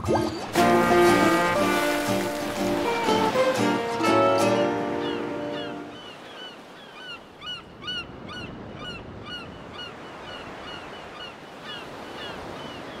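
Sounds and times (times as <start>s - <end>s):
ocean surf: 0.0s - 13.0s
birds chirping: 4.6s - 12.9s.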